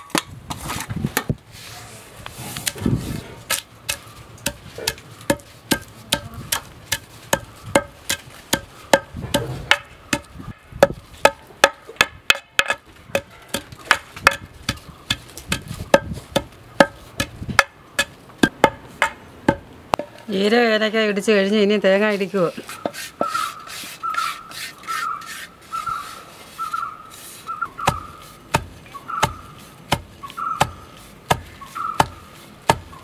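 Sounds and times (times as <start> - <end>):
pestle pounding in mortar: 3.9 - 20.1, 27.8 - 32.9.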